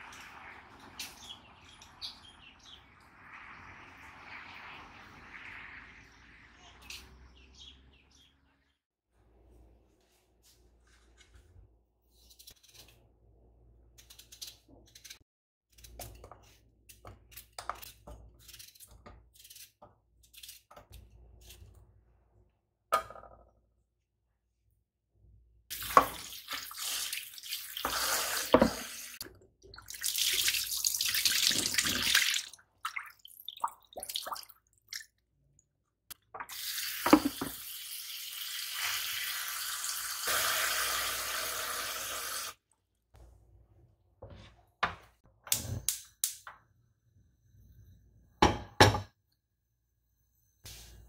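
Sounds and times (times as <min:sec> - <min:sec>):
tap running into saucepan: 0:37.0 - 0:37.6.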